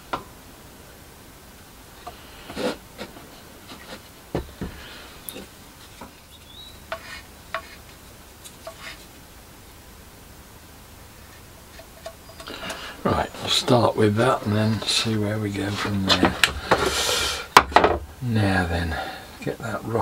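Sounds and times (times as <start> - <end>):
wooden spatula tapping and scraping: 2.0 - 9.2, 11.3 - 13.6.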